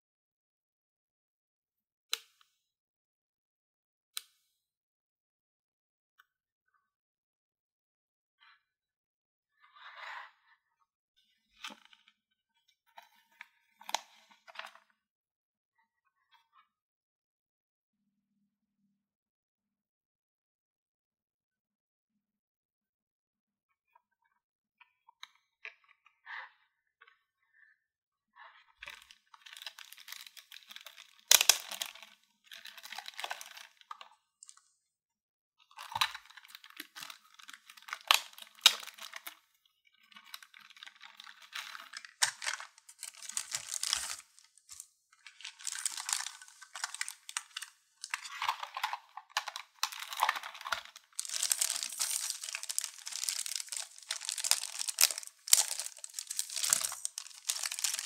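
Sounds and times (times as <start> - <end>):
packaging crinkling and tearing: 28.9 - 33.8, 35.9 - 39.3, 40.3 - 58.0.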